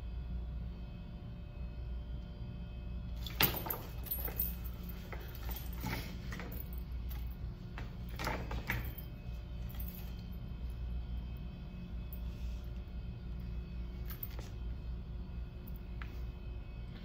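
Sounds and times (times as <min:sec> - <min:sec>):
low room hum: 0:00.0 - 0:17.0
knocks and rustles: 0:03.2 - 0:09.1.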